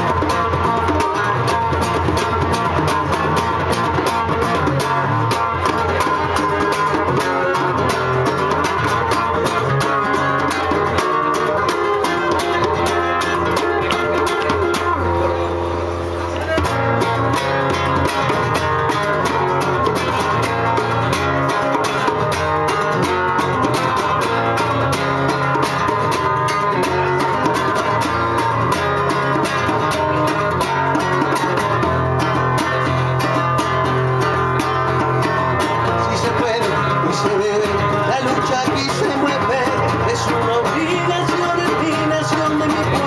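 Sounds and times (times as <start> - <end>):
acoustic guitar strumming: 0.0 - 43.0
hand drum: 0.0 - 43.0
man singing: 35.7 - 43.0.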